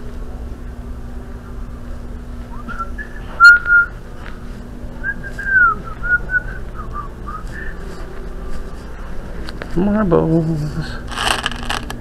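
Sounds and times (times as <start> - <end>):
person whistling a tune: 2.5 - 3.9, 5.0 - 7.8.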